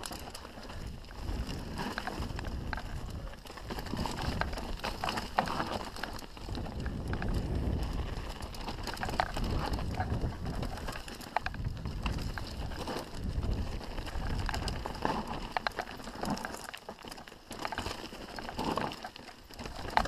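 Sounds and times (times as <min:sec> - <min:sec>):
wind buffeting microphone: 0:00.0 - 0:15.6
bike rattling over rocks: 0:00.0 - 0:20.0
bike tyres rolling over dirt and stones: 0:00.0 - 0:20.0.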